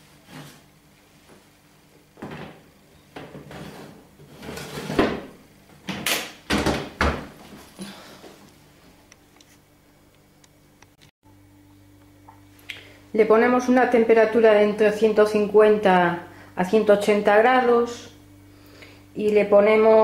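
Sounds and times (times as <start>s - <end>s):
metal baking trays scraping and clanking: 3.4s - 5.1s.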